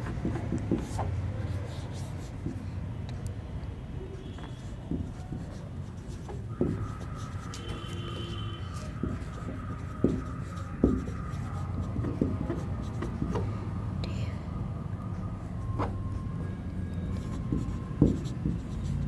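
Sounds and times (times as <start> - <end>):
marker tip tapping board: 0.0 - 1.1, 4.4 - 13.5, 17.2 - 19.0
marker writing on whiteboard: 0.0 - 13.6, 15.2 - 19.0.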